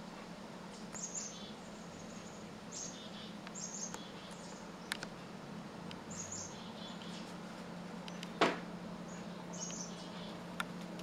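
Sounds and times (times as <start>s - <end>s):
chickadees calling: 0.9s - 5.0s, 6.0s - 7.4s, 8.1s - 10.8s.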